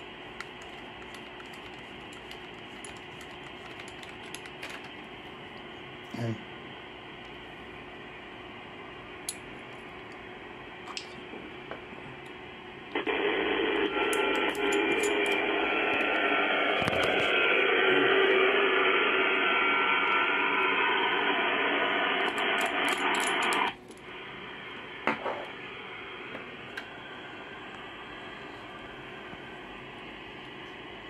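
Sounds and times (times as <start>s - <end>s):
faint steady radio tones: 10.3s - 31.0s
radio static hiss: 12.9s - 31.0s.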